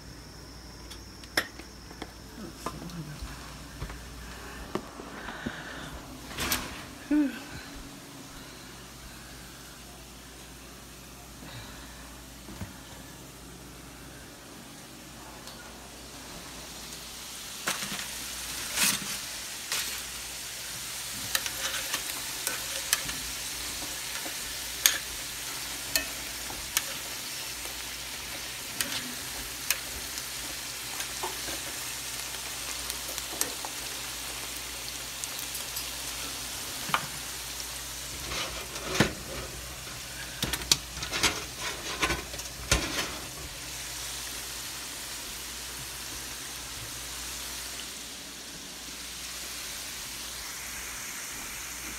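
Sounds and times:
potatoes sizzling in hot oil: 8.2 - 51.9
metal tongs clicking against pan: 21.3 - 23.1, 23.9 - 25.1, 25.7 - 27.1.

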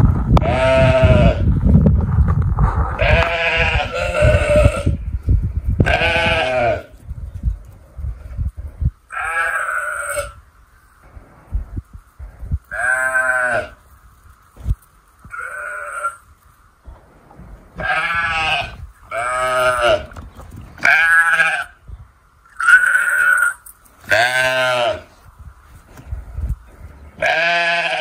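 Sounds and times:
sheep bleating: 3.0 - 5.0, 5.9 - 6.9, 9.1 - 10.4, 15.3 - 16.2, 17.8 - 20.1, 20.8 - 21.8, 22.5 - 25.1, 27.2 - 28.0.

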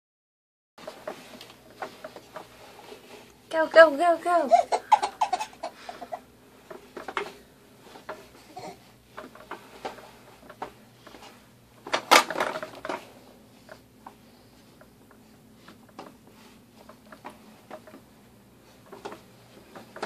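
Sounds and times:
plastic toy wheels clicking and rattling: 9.1 - 13.0
plastic toy clatter: 11.8 - 13.0.

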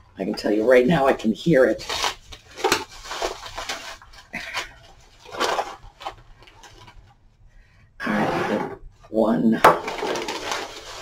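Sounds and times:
packing bags rustling: 0.8 - 7.2, 9.8 - 11.0.

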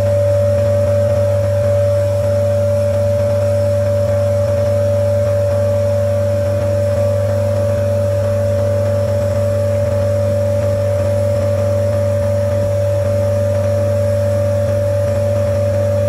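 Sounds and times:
nebulizer compressor humming: 0.0 - 16.0.

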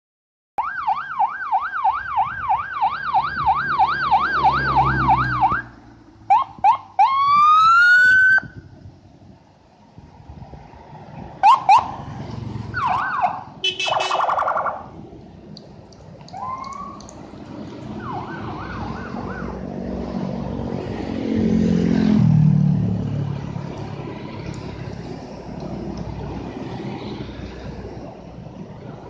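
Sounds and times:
electronic vehicle siren wailing: 0.6 - 5.7, 6.3 - 8.6, 11.4 - 12.0, 12.7 - 15.0, 16.3 - 17.2, 17.9 - 19.7
low rumble of engines: 0.6 - 29.0.

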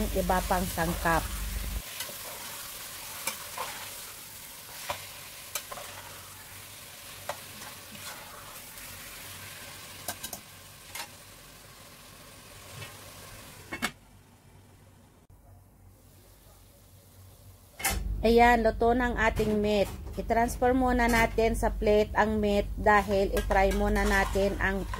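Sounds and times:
meat and onions sizzling: 0.0 - 13.7.

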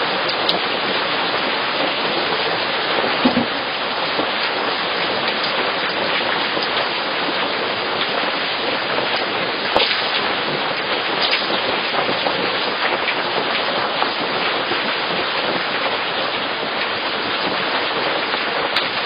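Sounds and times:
steady hiss like rain: 0.0 - 19.0
soft thump: 3.2 - 3.6.

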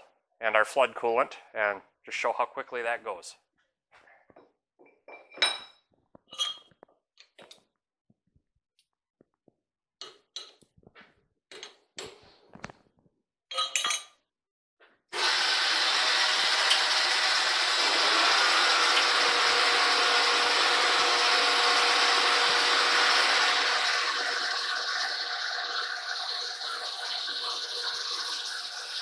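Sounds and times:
metal clinks and knocks: 4.8 - 7.6, 13.5 - 14.2
coolant splashing over spinning chuck: 15.2 - 29.0.

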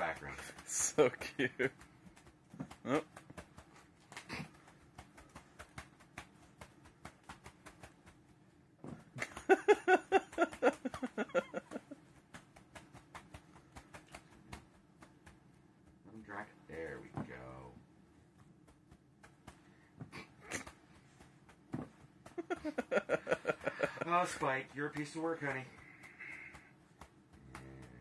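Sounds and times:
person speaking: 0.0 - 1.8, 22.6 - 26.6
kittens scampering on carpet: 0.0 - 9.2, 17.0 - 28.0.

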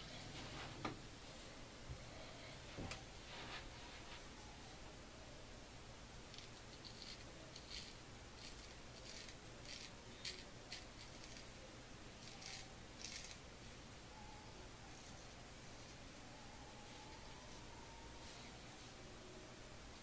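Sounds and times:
razor scraping stubble: 6.8 - 11.5, 12.2 - 13.4.

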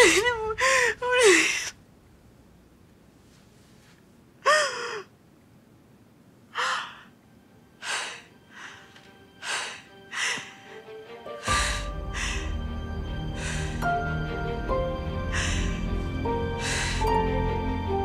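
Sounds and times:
woman sobbing: 0.0 - 1.7
soft music tones: 6.9 - 18.0.

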